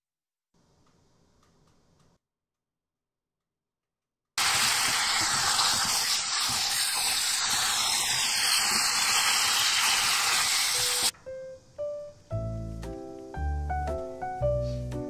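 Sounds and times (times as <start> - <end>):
meat sizzling in a frying pan: 4.4 - 11.1
background music: 11.1 - 15.0.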